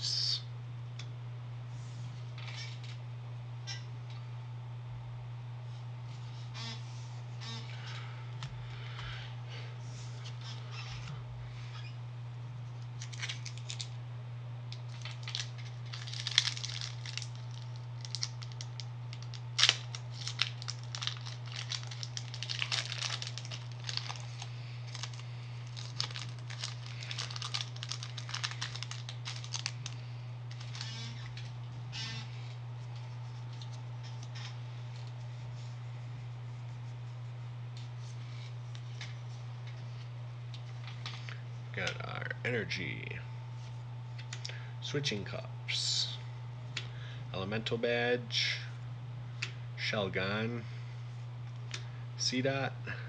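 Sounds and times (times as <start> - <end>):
steady low hum: 0.0 - 53.0
foil wrapper tearing and crinkling: 13.0 - 14.0, 14.8 - 31.5.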